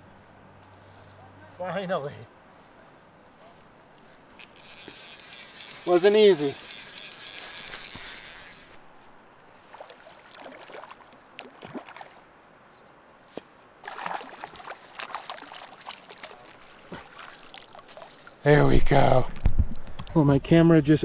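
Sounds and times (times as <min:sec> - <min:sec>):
lake water splashing and sloshing: 0:09.5 - 0:12.5, 0:13.8 - 0:18.5.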